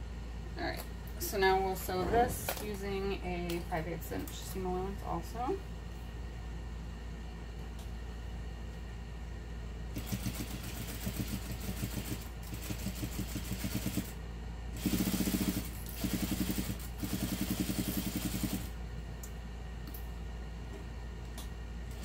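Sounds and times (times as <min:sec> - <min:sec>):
sewing machine stitching: 0:10.0 - 0:14.1.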